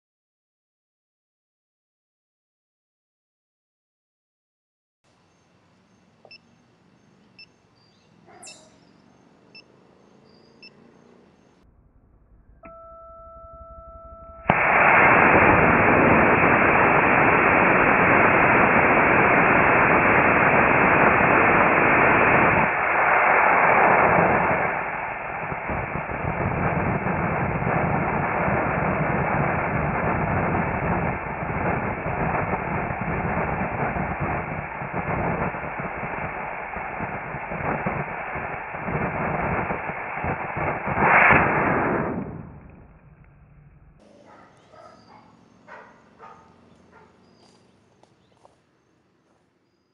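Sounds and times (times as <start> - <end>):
two-tone electronic beep: 12.6 - 14.6
rocket motor rushing hiss: 14.5 - 43.0.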